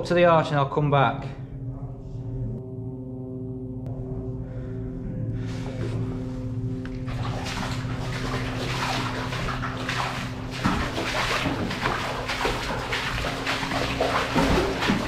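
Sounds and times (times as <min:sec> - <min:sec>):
footsteps splashing in water: 0:07.1 - 0:15.0.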